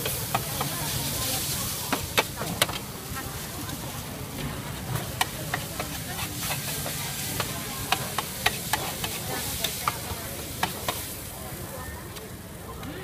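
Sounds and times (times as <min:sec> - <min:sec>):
noodles sizzling: 0:00.0 - 0:11.8
metal spatula scraping a pan: 0:05.5 - 0:11.1.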